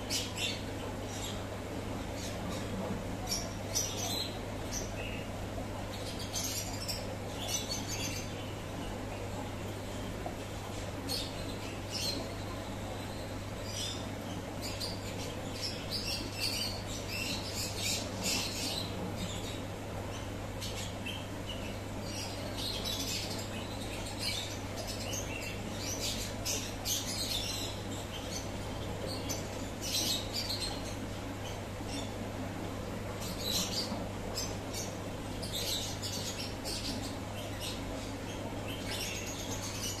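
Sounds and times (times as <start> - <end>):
aquarium equipment hum: 0.0 - 40.0.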